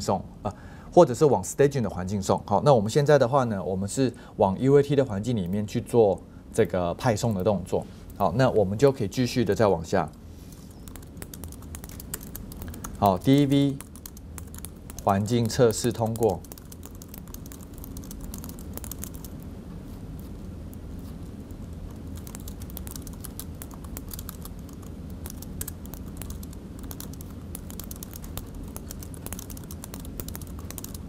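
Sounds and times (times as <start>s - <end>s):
low room hum: 0.0s - 31.0s
keyboard key clicks: 22.2s - 31.0s.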